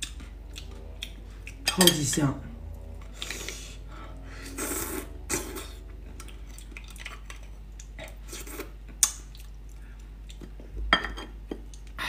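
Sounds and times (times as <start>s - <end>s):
wet mouth eating sounds: 0.0s - 1.9s, 4.4s - 10.7s.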